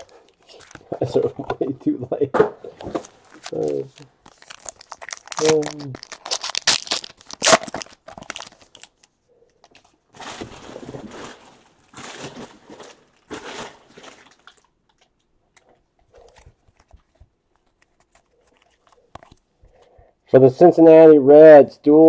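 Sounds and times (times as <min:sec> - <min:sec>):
foil wrapper crinkling and tearing: 0:03.0 - 0:15.1.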